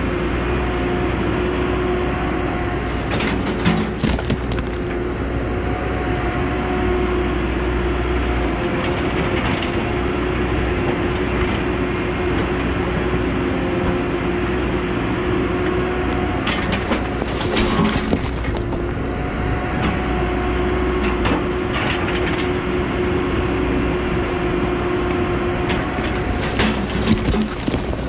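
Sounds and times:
excavator diesel engine and hydraulics: 0.0 - 28.0
knocks and rock clatters: 3.0 - 5.0, 16.4 - 19.0, 25.7 - 28.0.

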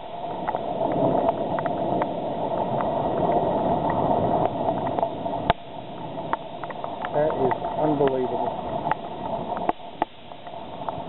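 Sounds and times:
runoff water washing: 0.0 - 11.0
light ticks: 6.3 - 8.2.

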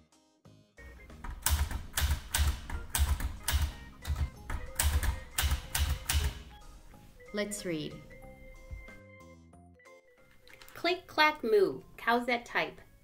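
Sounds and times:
manual typewriter keystrokes: 1.1 - 6.5.

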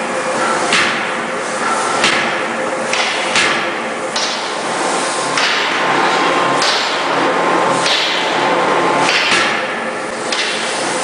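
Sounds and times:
forging hammer striking steel: 0.4 - 4.6, 5.3 - 8.4, 9.0 - 10.7.

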